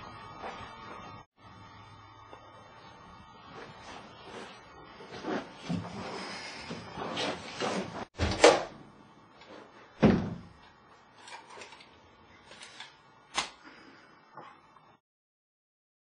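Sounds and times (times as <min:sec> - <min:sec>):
heavy door thump: 0:10.0 - 0:10.5.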